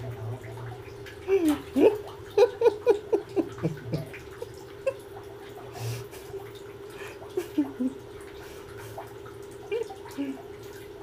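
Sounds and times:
water plopping in sink: 0:00.0 - 0:05.7
water drips: 0:00.0 - 0:11.0.

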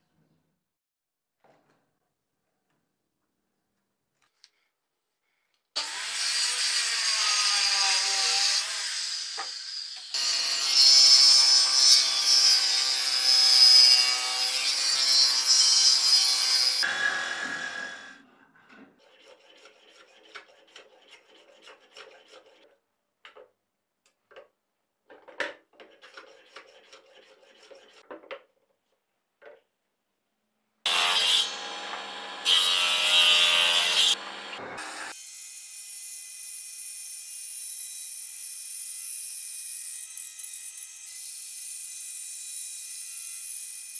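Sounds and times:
power saw cutting wood: 0:05.8 - 0:18.3, 0:30.9 - 0:43.9
table saw cutting wood: 0:05.8 - 0:18.3, 0:30.9 - 0:43.9.

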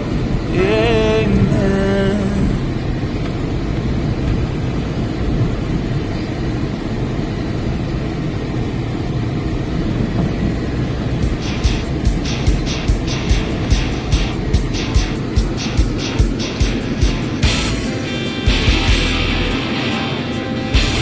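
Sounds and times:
rhythmic music: 0:11.2 - 0:21.0.

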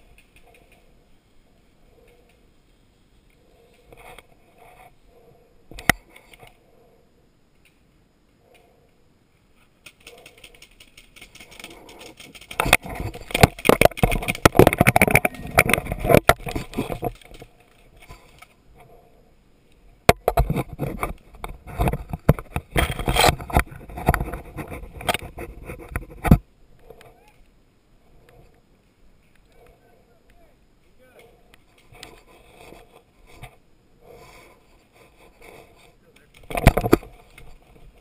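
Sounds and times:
gear rustling against camera: 0:09.6 - 0:19.1, 0:20.2 - 0:27.4, 0:30.9 - 0:38.0
sharp cracks: 0:09.8 - 0:18.6.

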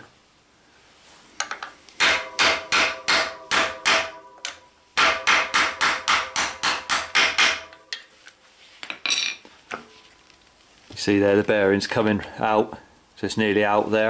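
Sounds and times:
hammer striking metal socket: 0:01.4 - 0:08.1.

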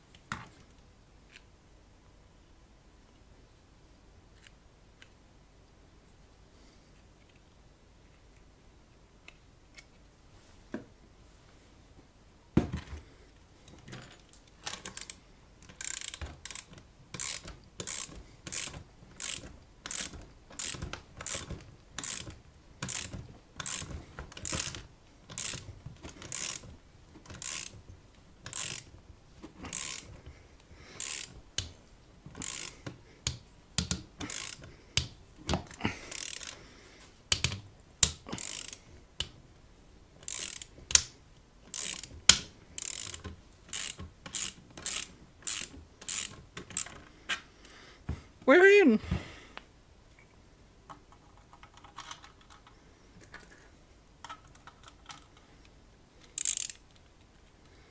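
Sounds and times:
ratchet wrench clicking: 0:14.7 - 0:26.7, 0:27.3 - 0:27.8, 0:28.4 - 0:28.9, 0:29.7 - 0:30.1, 0:31.0 - 0:31.7, 0:32.4 - 0:35.1, 0:36.1 - 0:36.6, 0:37.3 - 0:39.3, 0:40.2 - 0:41.1, 0:41.7 - 0:47.0, 0:56.4 - 0:56.9.

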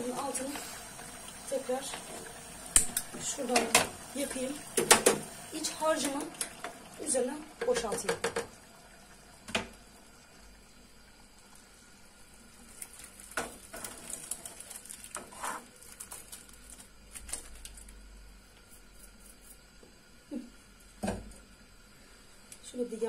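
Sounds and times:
pot and utensil knocks: 0:07.6 - 0:08.5.

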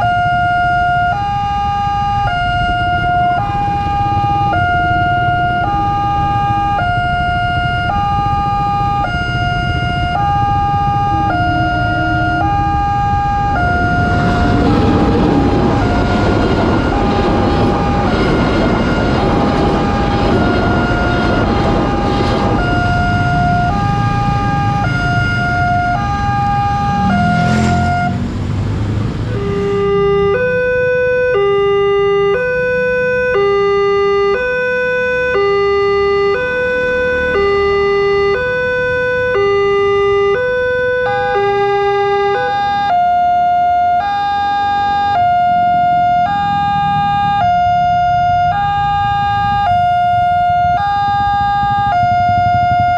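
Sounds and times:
crossing alarm two-tone warning: 0:00.0 - 0:28.2, 0:29.3 - 0:52.9
lower two-tone crossing alarm: 0:00.0 - 0:28.2, 0:29.3 - 0:52.9
motorcycle engines idling: 0:45.5 - 0:52.9.

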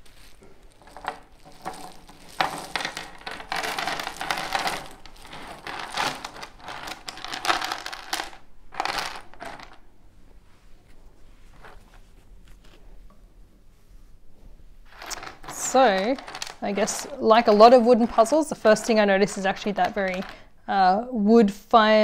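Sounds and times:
wooden puzzle pieces clattering: 0:00.0 - 0:09.8, 0:14.9 - 0:20.4.

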